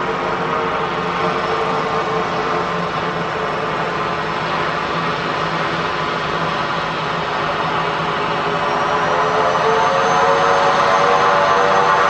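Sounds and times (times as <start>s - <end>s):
turboprop engine droning: 0.0s - 12.0s.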